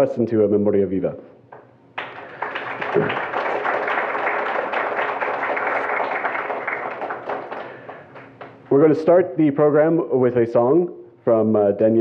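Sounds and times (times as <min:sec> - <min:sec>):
audience applauding: 0:02.0 - 0:08.6.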